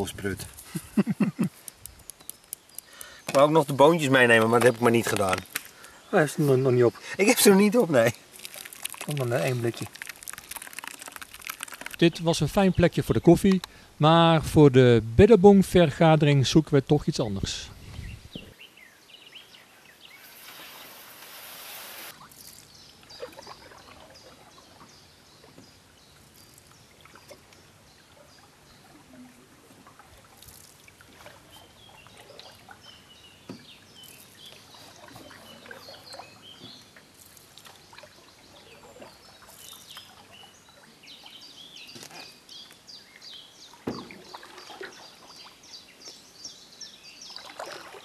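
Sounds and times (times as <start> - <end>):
small birds chirping: 0.0 - 13.9, 17.0 - 21.1, 22.0 - 29.4, 31.3 - 47.8
paddle strokes splashing water: 8.0 - 12.3, 23.1 - 25.6, 26.2 - 33.0, 33.6 - 41.0, 43.8 - 45.6, 47.3 - 48.0.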